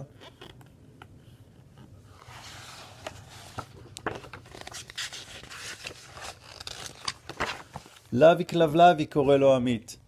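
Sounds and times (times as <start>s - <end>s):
hand rustling over paper: 1.7s - 8.2s
paper page crinkling as it turns: 2.2s - 8.1s.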